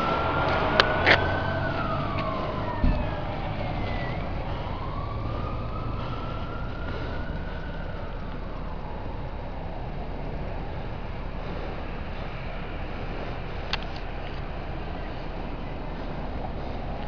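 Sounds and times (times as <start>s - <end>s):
engine rumble: 0.0s - 17.0s
fire truck siren wailing: 0.0s - 17.0s
low thump: 2.2s - 3.2s.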